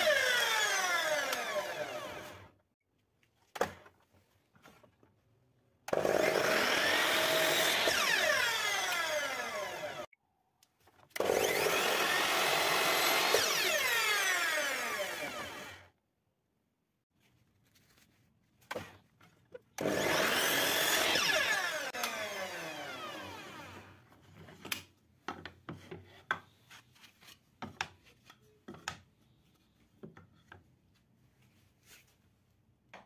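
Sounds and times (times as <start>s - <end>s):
miter saw cutting wood: 0.0s - 2.5s, 5.9s - 10.1s, 11.2s - 15.9s, 19.8s - 24.0s.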